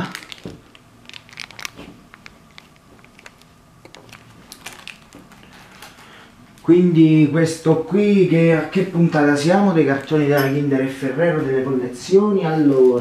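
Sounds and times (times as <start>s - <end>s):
wrapping crinkling: 0.0s - 6.7s.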